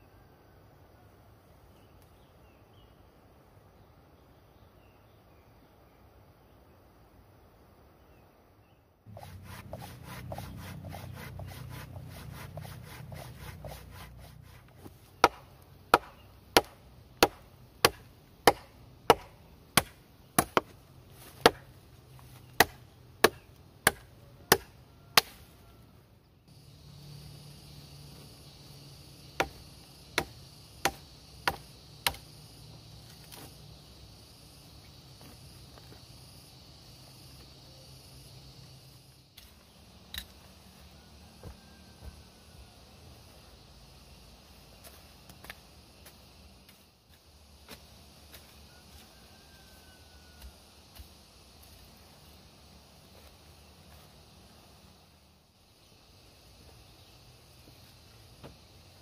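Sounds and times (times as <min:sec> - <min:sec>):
machete chopping wood: 0:15.2 - 0:21.7, 0:22.5 - 0:25.5, 0:29.4 - 0:29.6, 0:30.2 - 0:32.3.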